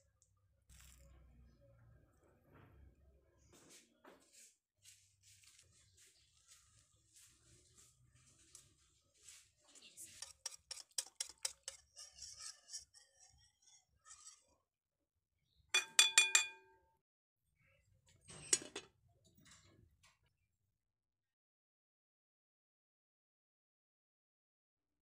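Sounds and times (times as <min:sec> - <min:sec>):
whisk ticking on glass bowl: 0:10.2 - 0:12.3, 0:15.8 - 0:16.7
glass lid clinking onto bowl: 0:15.8 - 0:16.7
metal-on-glass clinks: 0:15.8 - 0:16.8.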